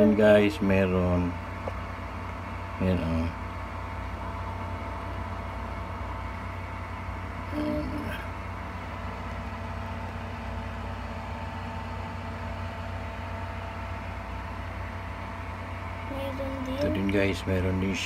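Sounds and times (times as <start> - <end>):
electric motor humming: 15.8 - 18.0.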